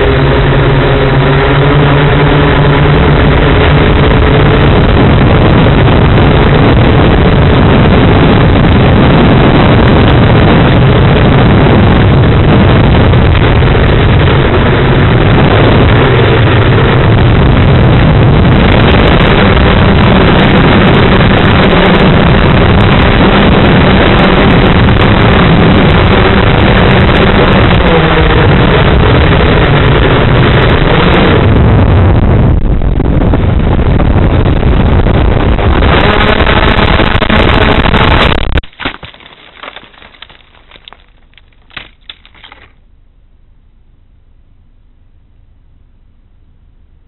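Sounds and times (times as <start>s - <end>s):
quadcopter motors and propellers: 0.0s - 38.6s
wind rushing over microphone: 0.0s - 42.7s
knocks and rustles in branches: 38.6s - 42.8s.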